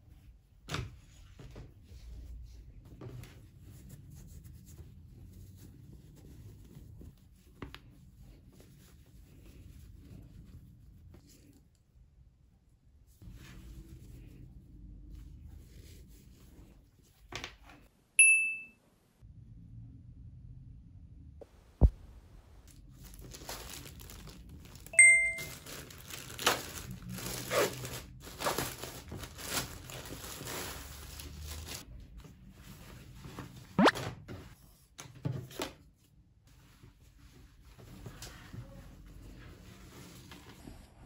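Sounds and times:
short beeps: 18.2s - 18.8s
plastic bag crinkling: 22.8s - 31.8s.

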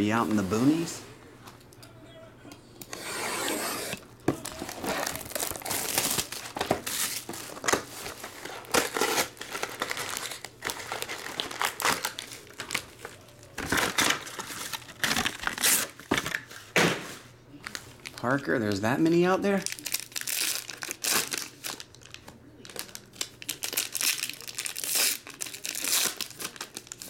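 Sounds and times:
knife slitting shrink-wrap: 2.9s - 12.3s, 23.6s - 27.0s
cellophane and foil crinkling: 4.3s - 16.6s, 17.6s - 18.8s, 19.5s - 27.0s.

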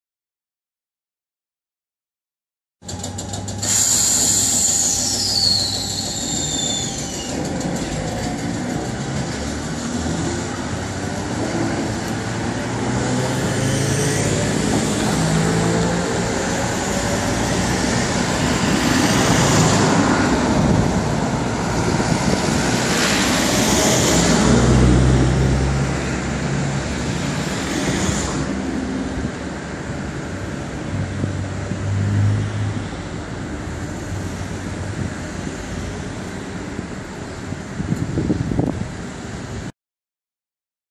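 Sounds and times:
tram motor hum: 2.8s - 31.8s
cars passing: 7.4s - 39.7s.

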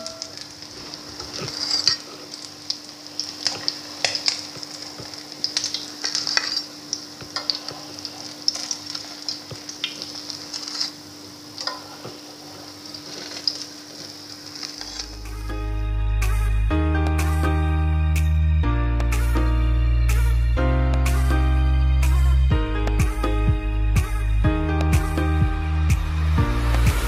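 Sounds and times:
oil sizzling in a frying pan: 0.0s - 15.3s.

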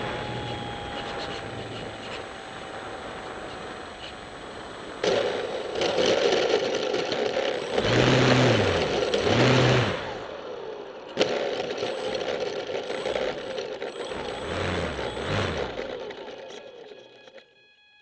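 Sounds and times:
model plane motor and propeller: 0.0s - 10.6s, 11.2s - 17.4s
steady hum: 0.0s - 10.6s.

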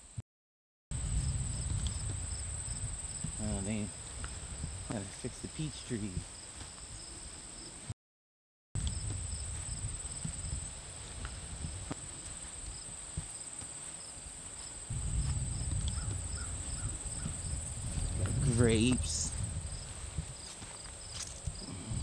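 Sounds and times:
microphone rumble: 0.9s - 6.2s, 8.8s - 13.3s, 14.9s - 22.0s
insect chorus trilling: 1.0s - 4.9s, 8.8s - 22.0s.

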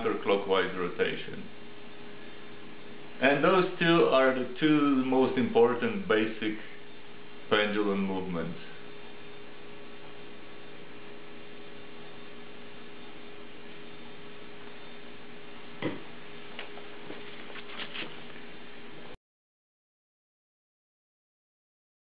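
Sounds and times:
steady electrical hum: 0.0s - 19.2s
sharp knock: 15.8s - 16.1s.

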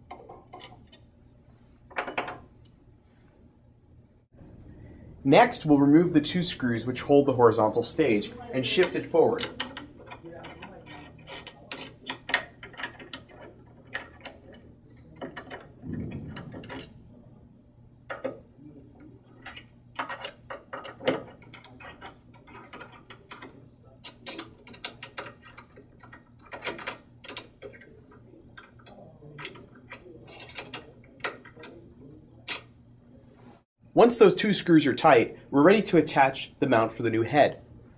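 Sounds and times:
hex key clicking in screws: 19.4s - 27.9s.

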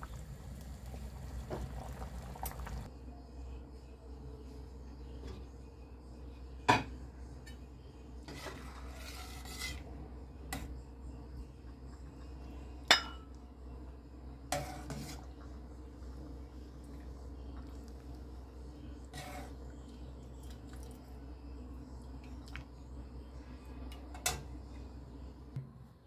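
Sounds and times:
soft stirring rustle: 0.0s - 2.9s, 7.4s - 10.1s, 13.8s - 25.5s.

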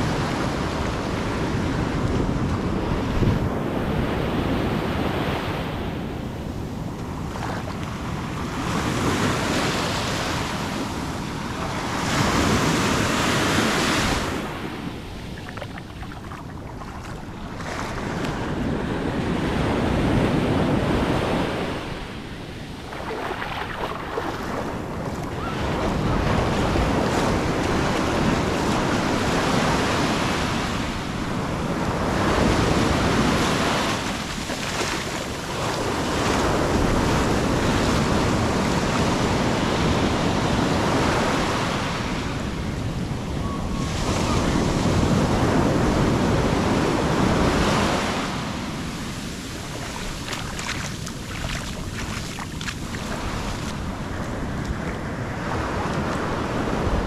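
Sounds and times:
wind buffeting microphone: 0.0s - 57.0s
surf breaking on sand: 8.5s - 39.6s, 44.0s - 57.0s.

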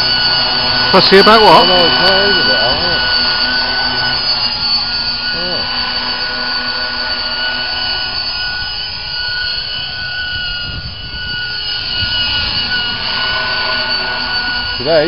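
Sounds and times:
model helicopter high whine: 0.0s - 15.0s.

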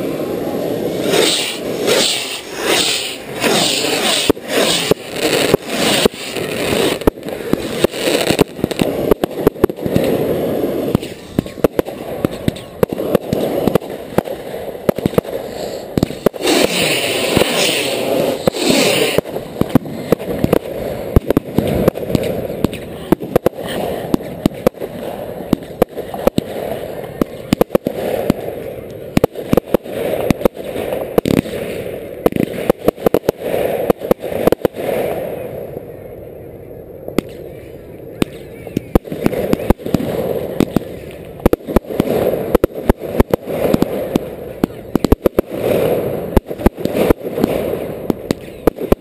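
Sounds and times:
loud hissing rush: 0.0s - 29.2s
fireworks bangs and crackles: 0.0s - 49.0s.

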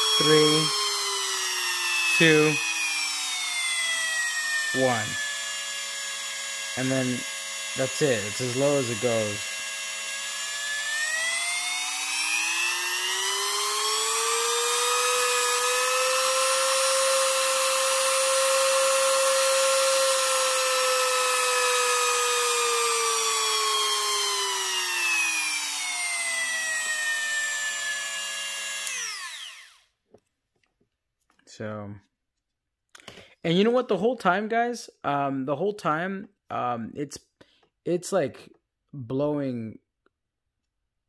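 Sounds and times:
rotary tool motor whine: 0.0s - 30.0s.

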